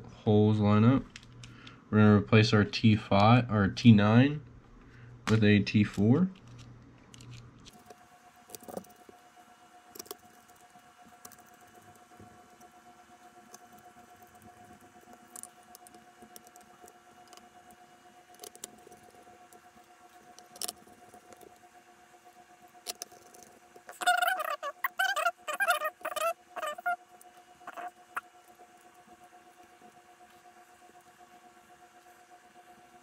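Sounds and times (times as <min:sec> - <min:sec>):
faint steady tone: 0:07.7 - 0:33.0.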